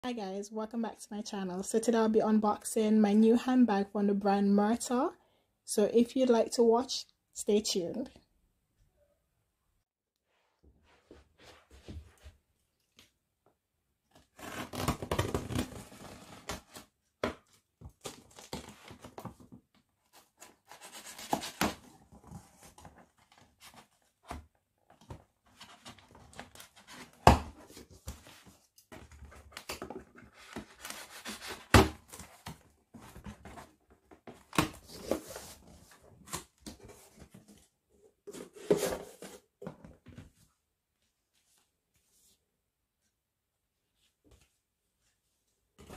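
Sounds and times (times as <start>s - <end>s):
tape tearing: 14.3s - 16.8s
cardboard rustling and crinkling: 14.7s - 40.5s.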